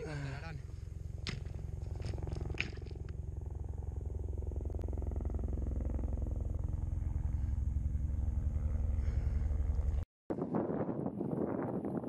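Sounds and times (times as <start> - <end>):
helicopter rotor beat: 0.4 - 10.0.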